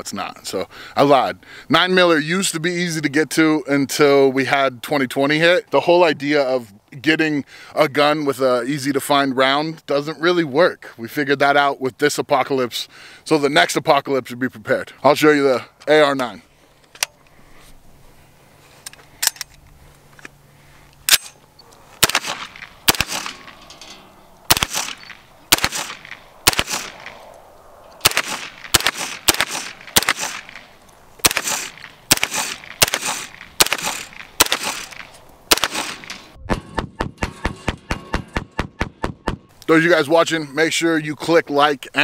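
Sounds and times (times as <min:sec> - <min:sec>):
gun handling clicks: 0:16.8 - 0:17.4, 0:18.8 - 0:36.3
rifle gunshots: 0:22.0 - 0:23.5, 0:24.5 - 0:27.2, 0:28.0 - 0:36.3.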